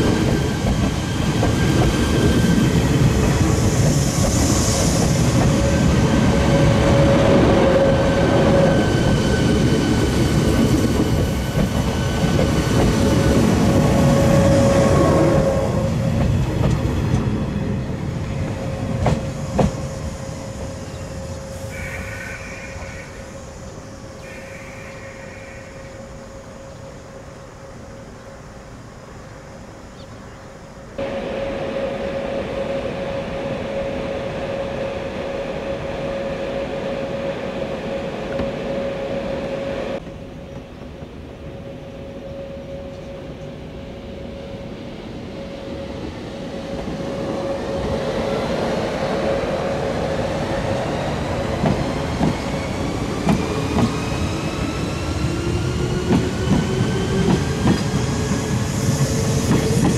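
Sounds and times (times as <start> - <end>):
electric train humming: 0.0 - 59.9
train motor whine: 31.0 - 40.1.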